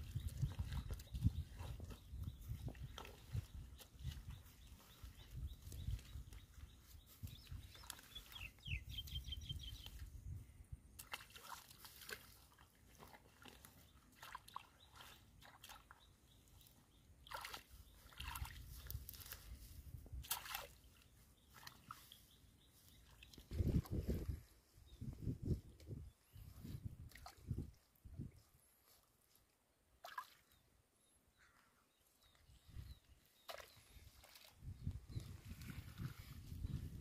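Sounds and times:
muddy water sloshing: 0.0 - 8.6, 10.9 - 24.4, 26.4 - 28.5, 30.0 - 30.6, 32.7 - 37.0
wet straw rustling and crackling: 17.3 - 24.5.

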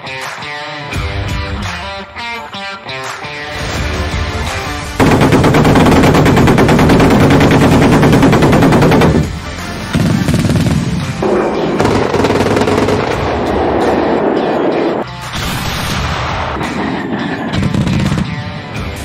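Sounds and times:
autocannons firing rapid bursts: 5.0 - 13.8, 16.8 - 18.3.

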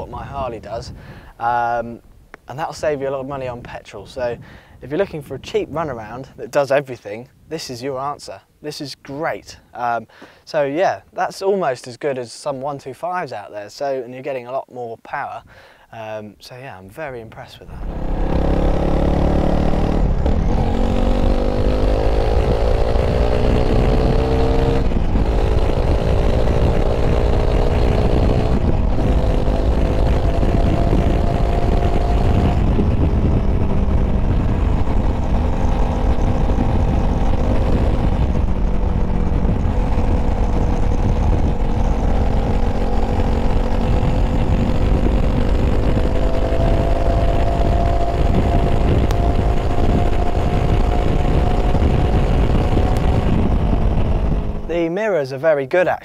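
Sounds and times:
wind rumble on microphone: 0.0 - 8.2, 17.6 - 54.9
motorcycle engine accelerating: 17.7 - 54.8.

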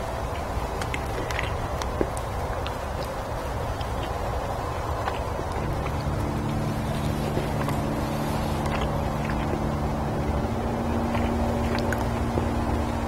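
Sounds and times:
chewing clicks: 0.3 - 12.8
low motor hum: 3.4 - 13.0.

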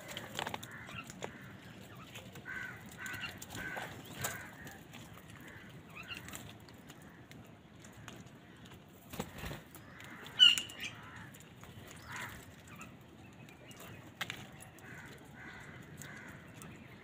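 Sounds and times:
crow calls: 0.0 - 7.3, 9.8 - 13.0, 14.5 - 17.0
wings flapping: 9.0 - 10.7.

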